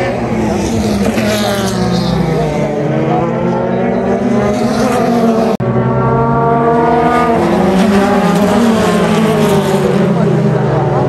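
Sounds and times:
race car engines passing at speed: 0.0 - 11.0.

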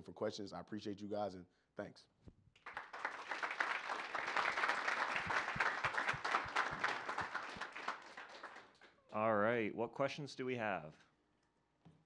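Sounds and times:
audience applauding: 2.6 - 9.0.

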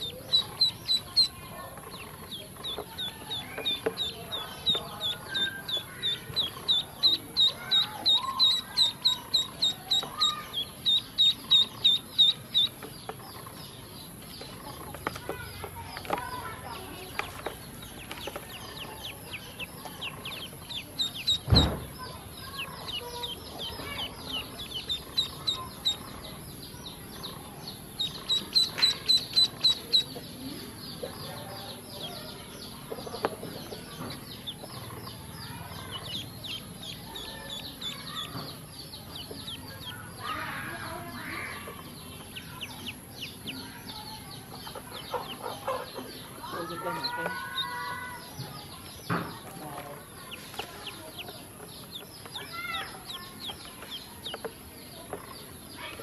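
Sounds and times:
ducklings peeping: 0.0 - 56.0
dull thump: 21.4 - 22.0.

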